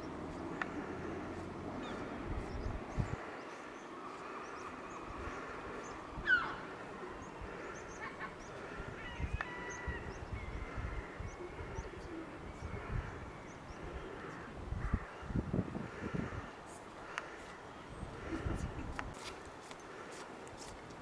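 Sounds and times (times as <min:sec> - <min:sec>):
small birds chirping: 0:00.0 - 0:15.3.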